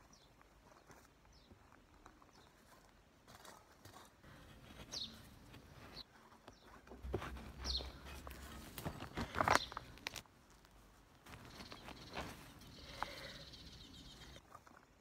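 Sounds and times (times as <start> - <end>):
hand tool scraping soil: 3.4 - 6.1, 6.8 - 10.2
bird chirping: 4.6 - 10.0, 11.3 - 14.4
leaves rustling: 7.0 - 13.4.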